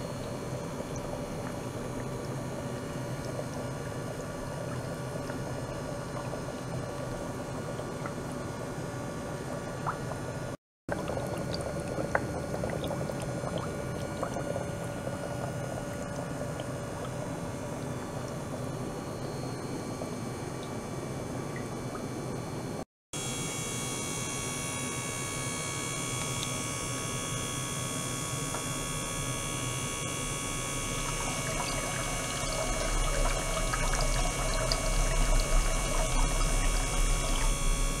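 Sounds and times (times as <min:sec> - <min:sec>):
water churning and bubbling: 0:00.0 - 0:22.2, 0:30.3 - 0:38.0
steady hum: 0:00.0 - 0:38.0.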